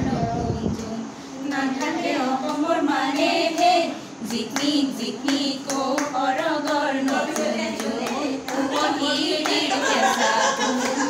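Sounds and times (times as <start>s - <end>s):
women singing together: 0.0s - 11.0s
hand claps: 1.8s - 9.7s.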